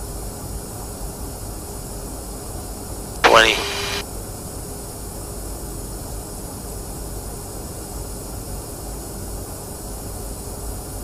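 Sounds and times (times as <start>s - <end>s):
faint steady hum: 3.2s - 4.0s.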